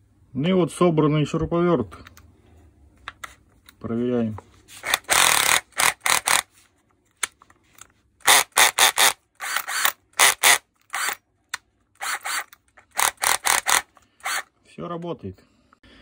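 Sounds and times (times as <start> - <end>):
cordless drill bursts: 4.8 - 6.5, 8.2 - 11.2, 12.0 - 14.5
drill clutch ratcheting: 4.8 - 6.5, 8.2 - 11.2, 12.0 - 14.5.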